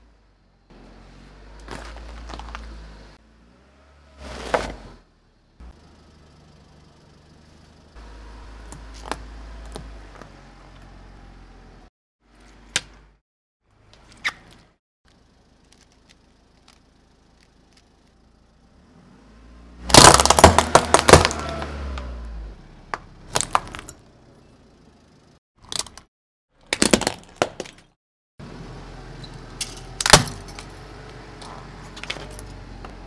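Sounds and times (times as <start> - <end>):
plastic box and sweets crunching: 1.6 - 2.8, 19.9 - 21.8, 23.3 - 24.0, 26.6 - 27.9.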